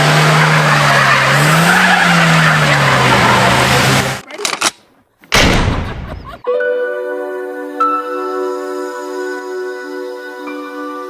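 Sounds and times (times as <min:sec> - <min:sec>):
car engine revving: 0:00.0 - 0:04.2.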